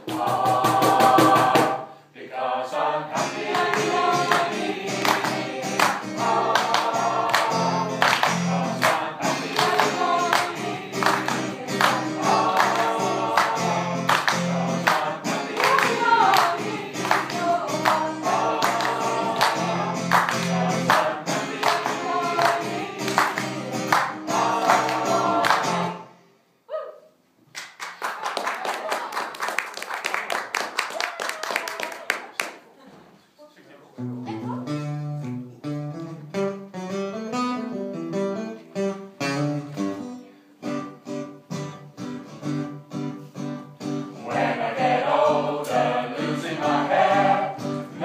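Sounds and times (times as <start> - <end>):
mixed choir singing: 0.0 - 26.1, 44.2 - 48.0
hand claps: 3.5 - 25.9, 27.5 - 32.6.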